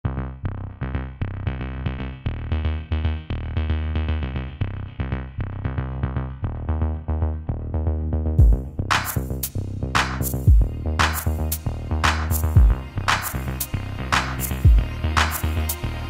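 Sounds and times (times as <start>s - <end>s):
bass line: 0.0s - 16.0s
synthesizer notes: 6.4s - 16.0s.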